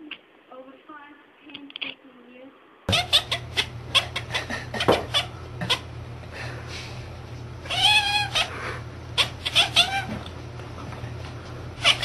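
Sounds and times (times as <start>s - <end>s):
cat meowing: 2.9s - 4.2s, 7.7s - 8.5s, 9.2s - 10.2s, 11.8s - 12.0s.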